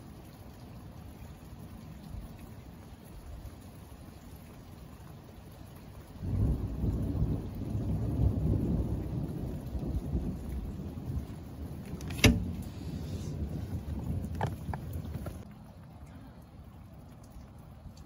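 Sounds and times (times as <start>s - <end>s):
thunder rumbling: 6.1s - 15.6s.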